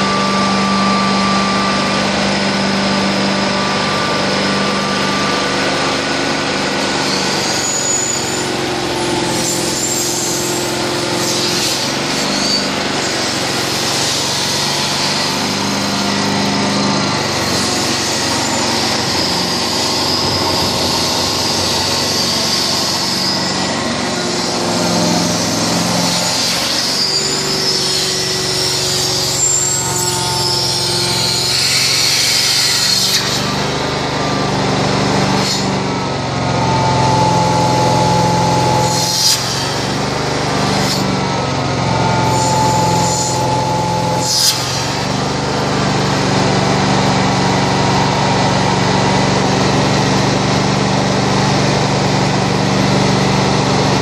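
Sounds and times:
carpet cleaning machine humming: 0:00.0 - 0:54.0
thin whistle: 0:07.0 - 0:13.4, 0:14.0 - 0:33.4, 0:36.6 - 0:41.1, 0:42.0 - 0:45.2.

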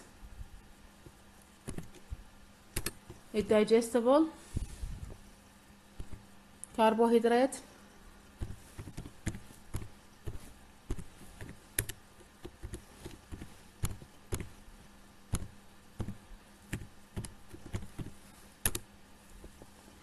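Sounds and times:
keyboard keystrokes clicking: 0:01.6 - 0:02.0, 0:02.8 - 0:03.2, 0:08.4 - 0:14.5, 0:15.3 - 0:18.8.

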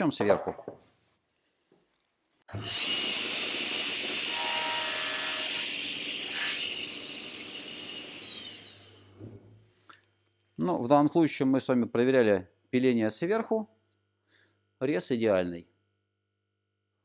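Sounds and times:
table saw blade whine: 0:02.5 - 0:09.2.

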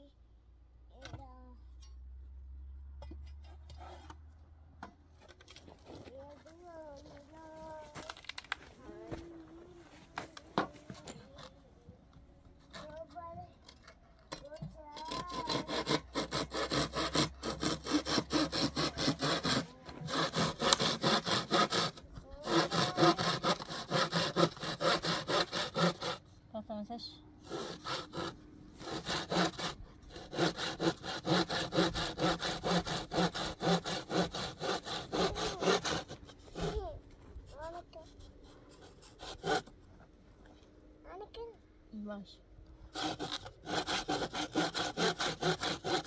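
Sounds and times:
hand saw cutting wood: 0:03.5 - 0:04.3, 0:12.7 - 0:26.3, 0:27.4 - 0:39.8, 0:42.9 - 0:46.0.

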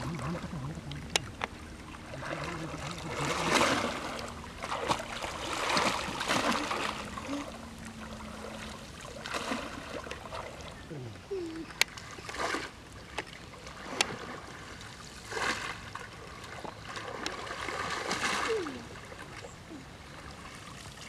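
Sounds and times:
water sloshing and splashing: 0:00.0 - 0:21.0.

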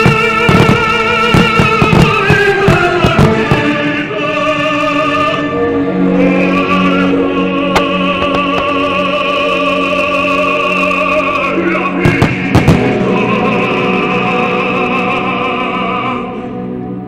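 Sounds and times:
firework bangs: 0:00.0 - 0:03.8, 0:12.0 - 0:13.0
opera singer with vibrato: 0:00.0 - 0:16.8
orchestra: 0:00.0 - 0:17.0.

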